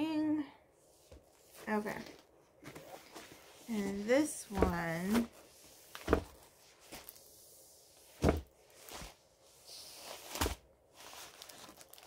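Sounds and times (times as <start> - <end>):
canvas rustling: 1.4 - 12.0.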